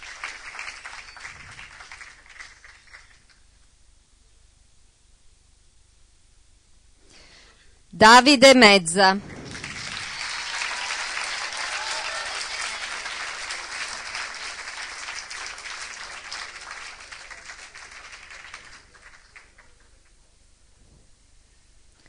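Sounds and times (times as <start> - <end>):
audience applauding: 0.0 - 3.4, 9.2 - 20.2.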